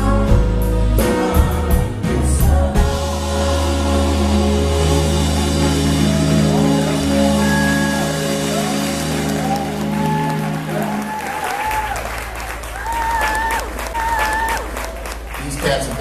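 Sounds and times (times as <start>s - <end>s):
live band sustained chord: 0.0s - 15.3s
people clapping: 6.6s - 16.0s.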